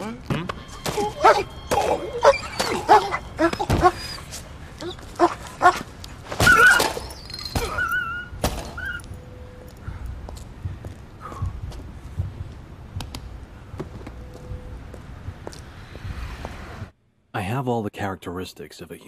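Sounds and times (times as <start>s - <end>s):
small dog yelping and whimpering: 0.8s - 5.8s, 6.4s - 9.1s.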